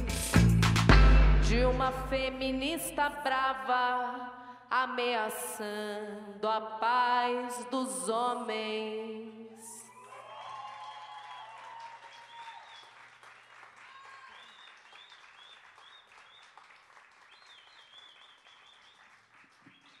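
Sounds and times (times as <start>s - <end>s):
crowd cheering and whooping: 9.9s - 12.9s, 13.8s - 14.7s
audience applause: 10.0s - 20.0s.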